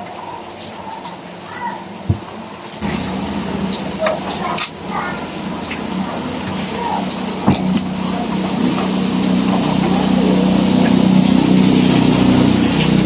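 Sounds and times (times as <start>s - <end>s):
engine hum: 2.8s - 13.0s.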